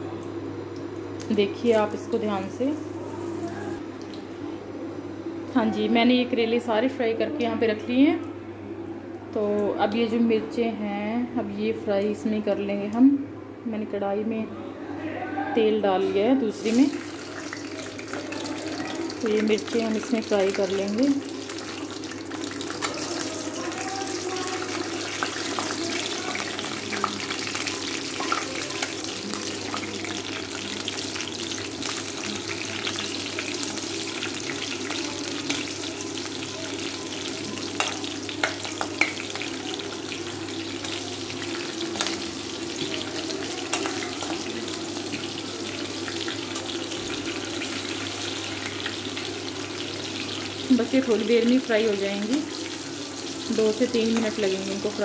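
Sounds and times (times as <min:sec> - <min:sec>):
chillies sizzling in hot oil: 0:16.5 - 0:55.0.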